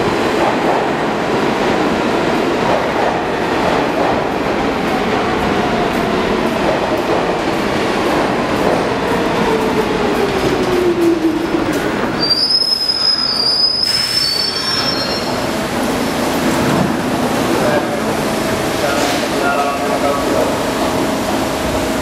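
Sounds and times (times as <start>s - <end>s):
rumble of train wheels: 0.0s - 22.0s
subway train braking: 0.0s - 22.0s
high wheel and brake squeals: 12.2s - 15.5s.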